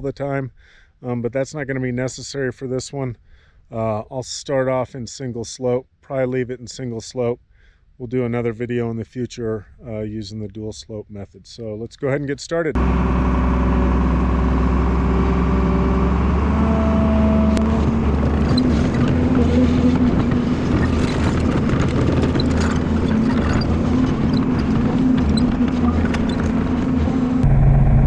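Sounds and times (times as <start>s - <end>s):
excavator diesel engine running: 12.8s - 28.0s
bucket scraping through soil: 17.6s - 26.9s.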